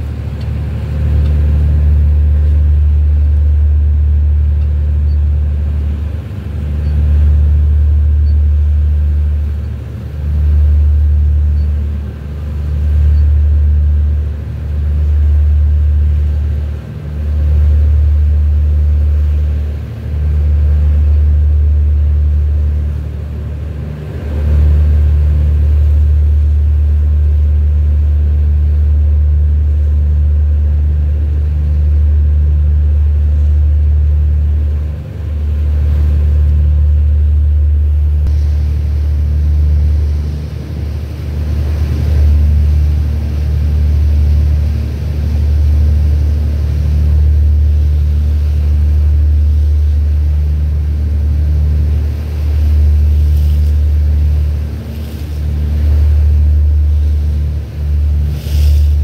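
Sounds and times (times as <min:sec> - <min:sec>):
boat engine rumbling: 0:00.0 - 0:59.0
hiss: 0:52.0 - 0:59.0.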